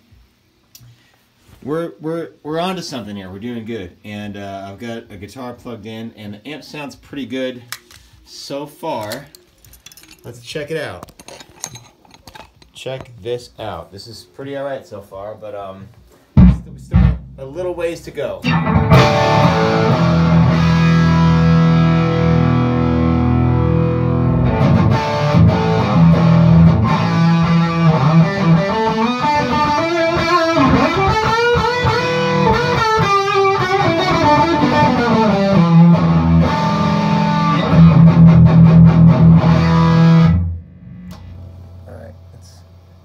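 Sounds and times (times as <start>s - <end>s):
overdriven electric guitar: 18.4s - 41.9s.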